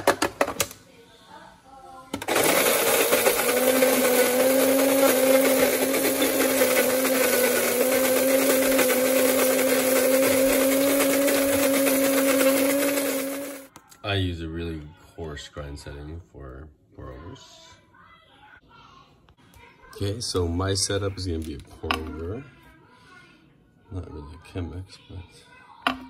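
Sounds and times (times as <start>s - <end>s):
coffee grinder grinding beans: 2.2s - 13.7s.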